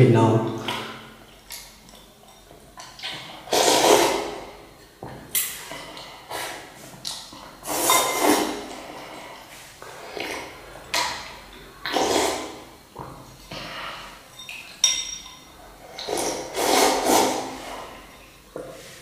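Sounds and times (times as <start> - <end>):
utensils clinking on ceramic bowls: 1.3 - 3.0, 7.8 - 8.4, 14.3 - 16.1.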